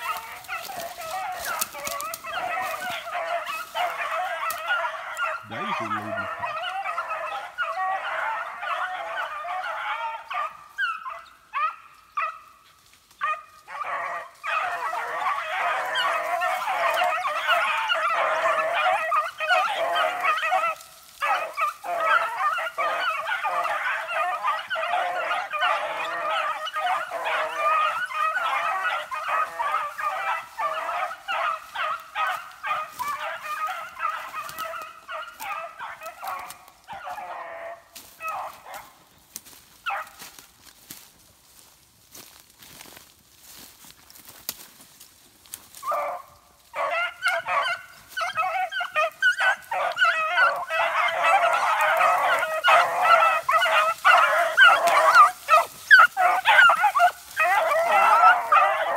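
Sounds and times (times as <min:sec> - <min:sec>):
beagles baying: 0:00.0 - 0:58.9.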